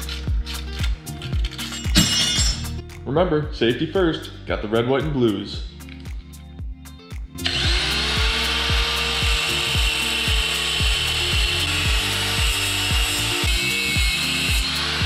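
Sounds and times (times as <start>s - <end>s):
background music with steady beat: 0.0s - 15.0s
angle grinder cutting steel chain: 7.4s - 15.0s.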